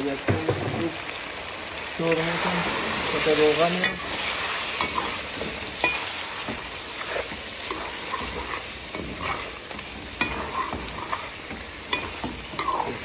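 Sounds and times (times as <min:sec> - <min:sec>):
chicken sizzling in hot oil: 0:00.0 - 0:13.0
metal spoon scraping a pot: 0:03.8 - 0:13.0.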